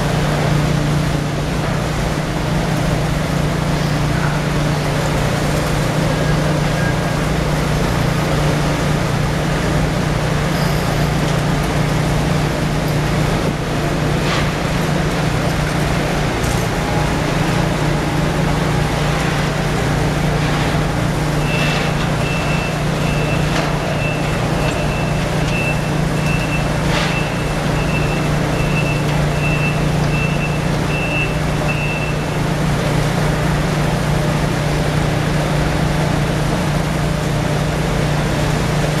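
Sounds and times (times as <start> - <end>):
machinery engine hum: 0.0 - 39.0
forklift reversing alarm beeping: 21.1 - 32.6.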